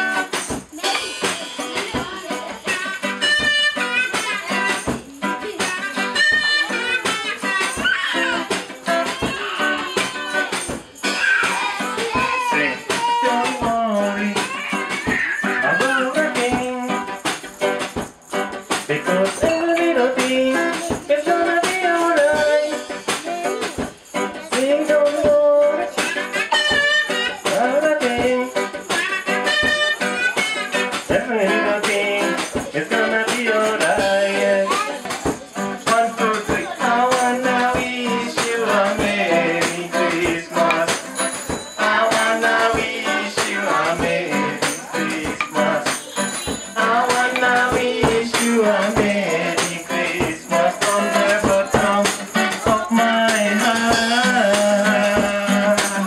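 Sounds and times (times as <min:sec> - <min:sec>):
drum beat with cymbal: 0:00.0 - 0:56.0
rattling percussion: 0:00.0 - 0:56.0
strummed acoustic guitar: 0:00.0 - 0:56.0.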